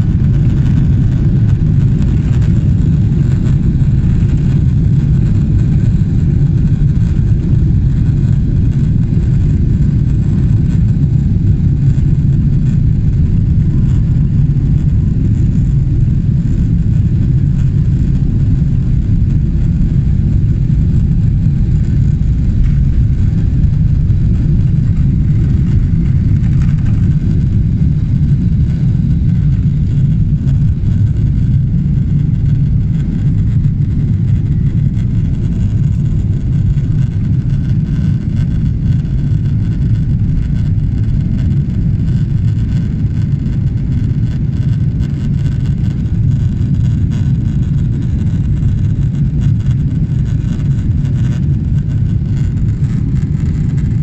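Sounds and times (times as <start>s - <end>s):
jet engines rumbling in cabin: 0.0s - 54.0s
rushing air: 9.4s - 36.4s.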